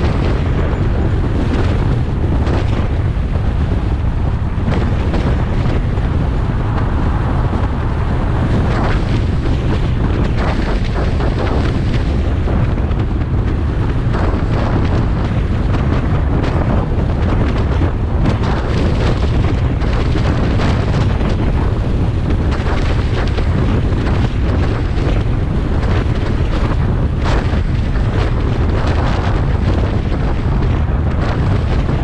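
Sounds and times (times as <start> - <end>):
road and wind rumble: 0.0 - 32.0
wind buffeting microphone: 0.0 - 32.0.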